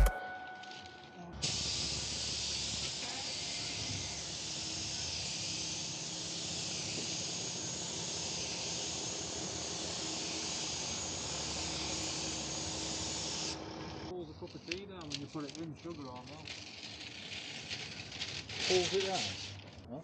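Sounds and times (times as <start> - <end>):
paint spray gun hissing: 1.4 - 14.1.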